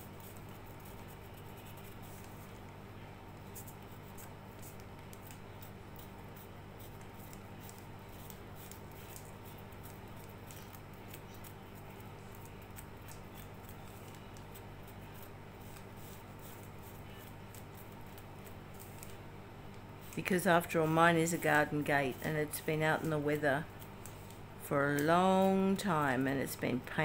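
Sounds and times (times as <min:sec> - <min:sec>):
low electrical hum: 0:00.0 - 0:27.0.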